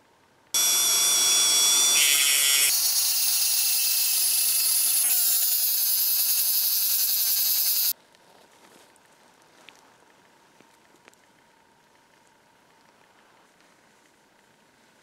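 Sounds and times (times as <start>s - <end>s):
rotary tool buffing wheel whine: 0.6s - 8.0s.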